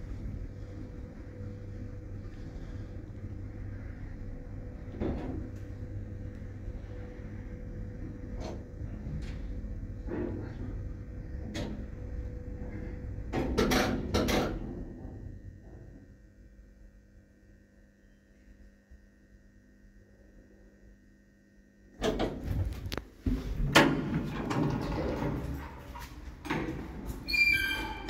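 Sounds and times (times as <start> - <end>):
lift running rumble and whine: 0.0 - 21.4, 22.0 - 28.0
low electrical hum: 0.0 - 28.0
lift clunks and clicks: 22.0 - 27.2.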